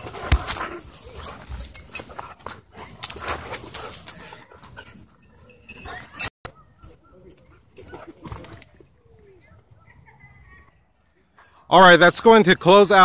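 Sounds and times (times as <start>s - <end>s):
dog panting: 0.0s - 6.3s.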